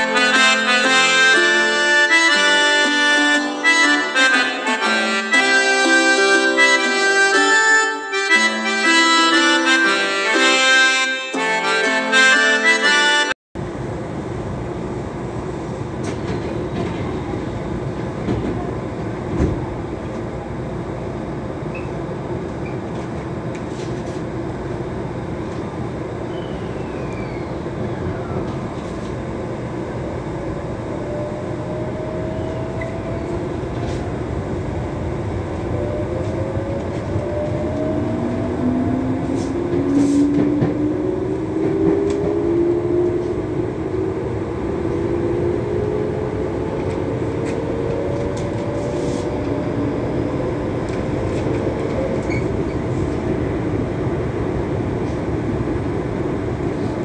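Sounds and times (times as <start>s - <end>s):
train wheels and motors rumbling: 13.6s - 57.0s.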